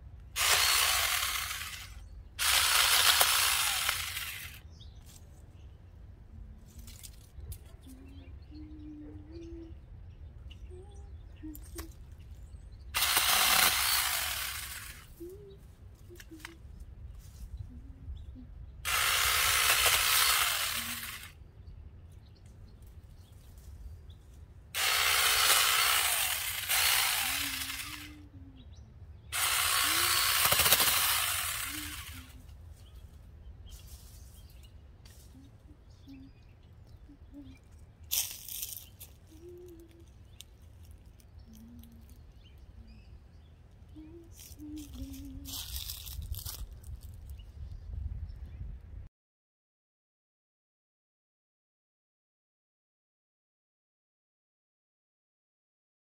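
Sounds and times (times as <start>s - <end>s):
mini chainsaw cutting branches: 0.4s - 4.6s, 13.0s - 15.4s, 18.8s - 21.4s, 24.8s - 28.3s, 29.3s - 32.5s, 38.1s - 40.5s, 44.4s - 47.1s.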